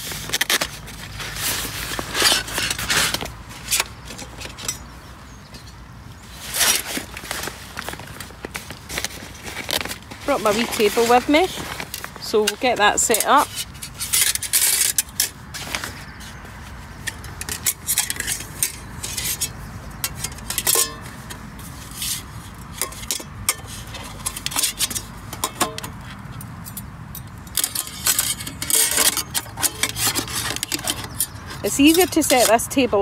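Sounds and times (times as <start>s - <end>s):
metal table parts clinking: 17.4s - 21.1s, 27.5s - 32.6s.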